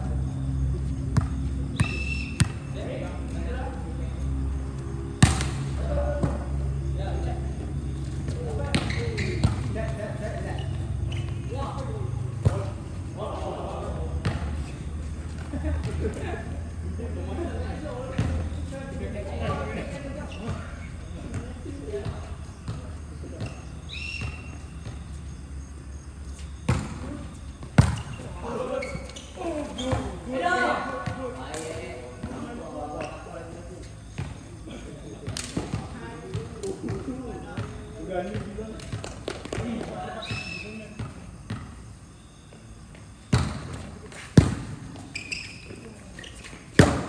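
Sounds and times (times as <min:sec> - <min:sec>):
steady low hum: 0:00.0 - 0:39.8
short high squeak: 0:01.8 - 0:02.4, 0:08.9 - 0:09.4, 0:45.1 - 0:46.6
faint voices of players: 0:05.6 - 0:14.9, 0:15.5 - 0:24.4, 0:26.8 - 0:42.4.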